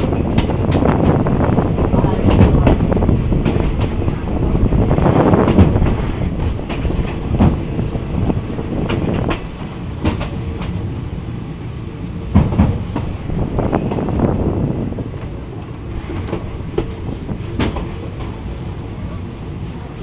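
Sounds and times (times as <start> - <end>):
train wheels clacking on rail joints: 0.0 - 10.9, 12.2 - 14.3, 16.0 - 18.5
train running rush: 0.0 - 20.0.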